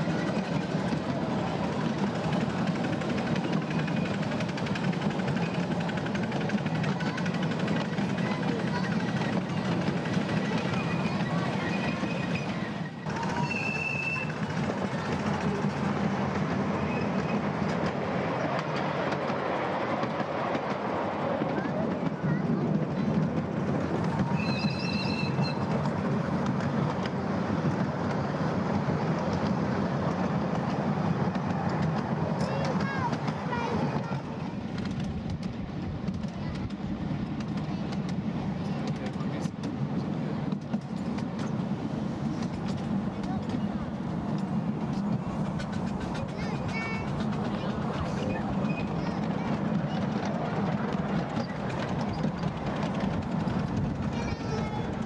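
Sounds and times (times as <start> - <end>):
miniature train wheels on rail: 0.0 - 55.0
high squeal: 10.8 - 14.4, 24.3 - 25.8.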